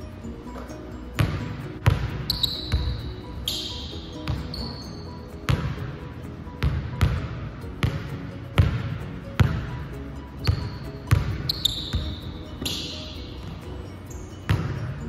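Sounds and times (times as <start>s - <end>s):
basketball bouncing on wooden floor: 0.6s - 3.0s, 4.0s - 4.6s, 5.5s - 5.8s, 6.6s - 9.7s, 10.4s - 12.8s, 14.5s - 14.9s.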